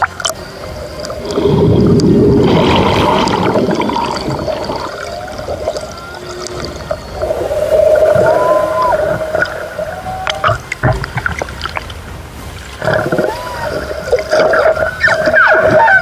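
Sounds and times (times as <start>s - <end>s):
whale calls: 0.0s - 11.4s, 12.7s - 16.0s
underwater rush and bubbling: 0.0s - 16.0s.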